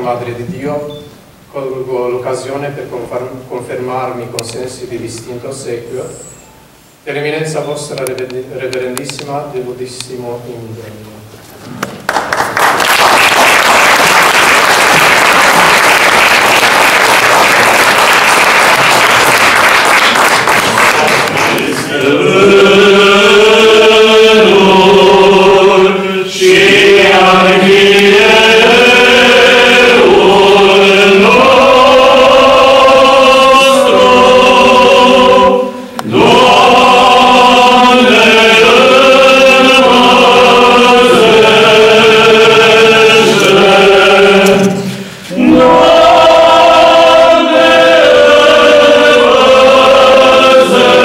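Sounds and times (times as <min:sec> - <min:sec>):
group singing a chant: 0:13.4 - 0:51.0.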